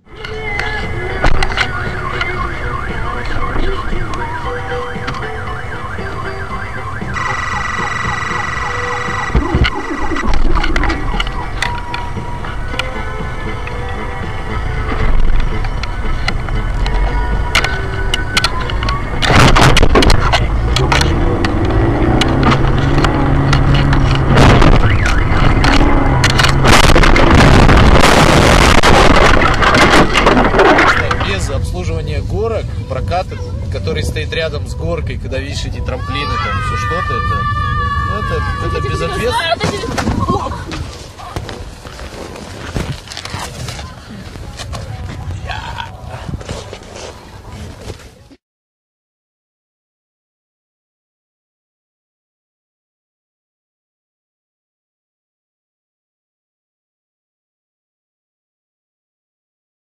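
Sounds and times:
car engine humming: 0.1 - 40.6
electronic siren wailing: 0.4 - 14.8, 16.8 - 31.2, 36.7 - 39.6
steady low rumble: 5.8 - 35.4
car crash scraping and rattling: 19.2 - 31.6.

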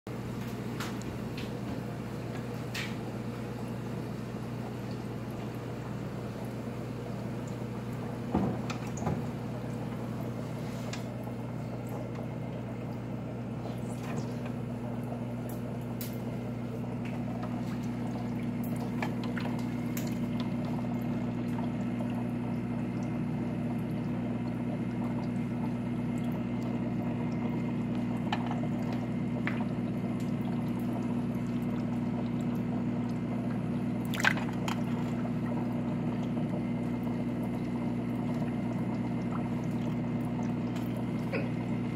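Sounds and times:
low electrical hum: 0.1 - 41.9
water trickling: 3.7 - 41.9
net knocks and splashes in water: 34.1 - 35.1.

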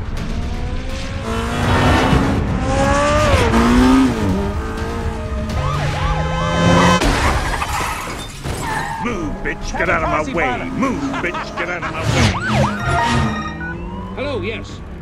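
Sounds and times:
sports car engine revving: 0.2 - 7.0
police siren yelping: 5.1 - 7.0, 9.8 - 14.8.

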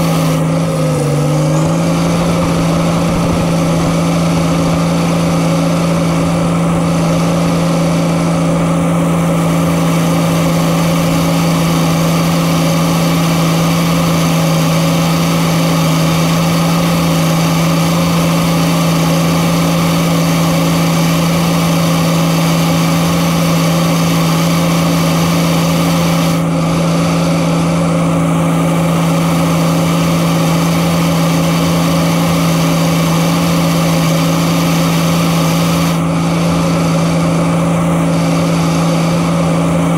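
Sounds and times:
diesel engine running: 0.0 - 39.9.

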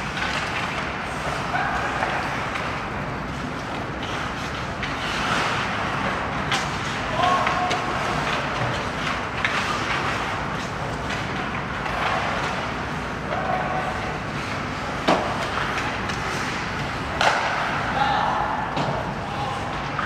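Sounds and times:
skates on ice: 0.0 - 20.0
stick hitting puck: 15.0 - 17.8.

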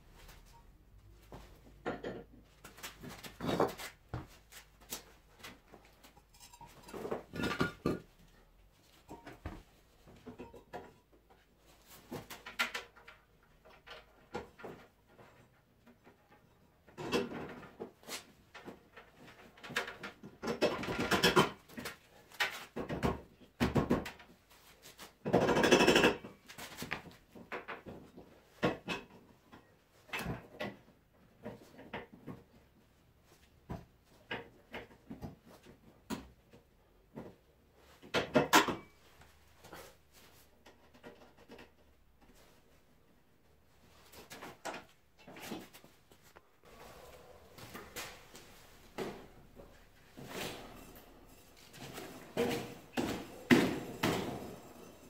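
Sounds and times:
scooter wheel parts knocking and scraping: 1.3 - 8.2, 46.6 - 55.0.

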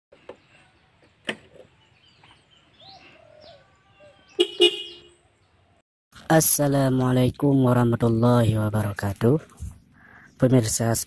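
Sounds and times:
motorcycle horn honks: 4.4 - 5.2.

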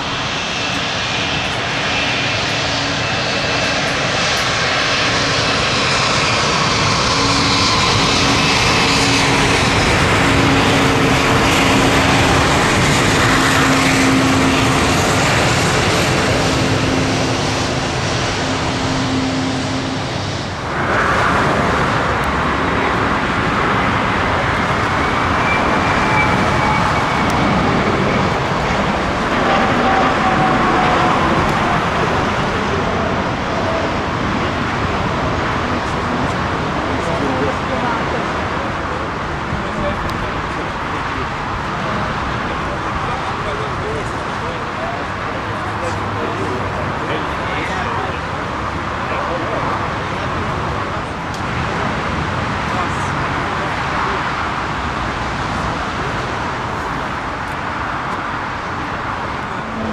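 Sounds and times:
jet engines rushing: 0.0 - 59.9
low hum: 59.2 - 59.9.

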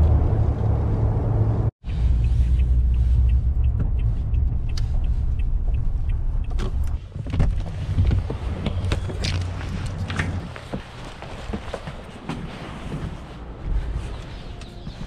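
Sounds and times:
car engine and road rumble: 0.0 - 15.0
light regular ticking: 1.9 - 7.1.

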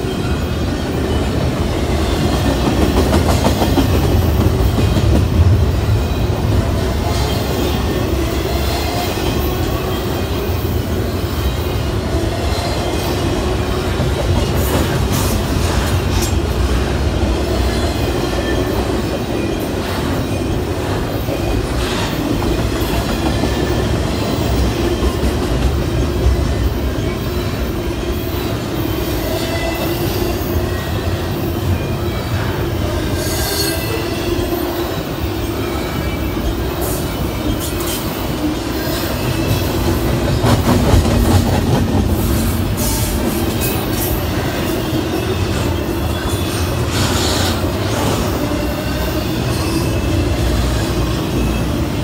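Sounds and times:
steel wheels rumbling on rail: 0.0 - 52.0
high wheel squeal: 42.3 - 52.0.

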